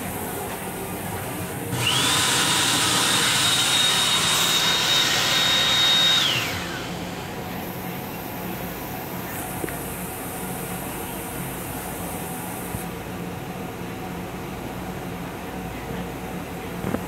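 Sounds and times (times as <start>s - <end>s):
hand dryer blowing: 1.7s - 7.3s.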